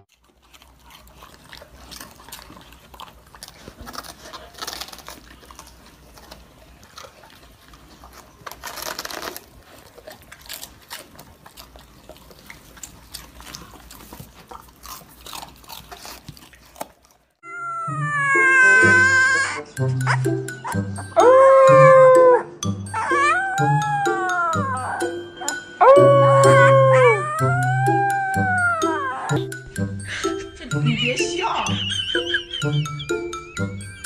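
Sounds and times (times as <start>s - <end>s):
dogs crunching cabbage leaves: 0.0s - 17.4s.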